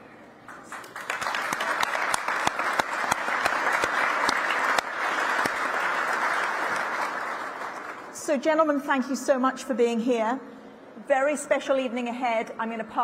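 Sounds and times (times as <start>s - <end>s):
audience applauding: 0.5s - 8.1s.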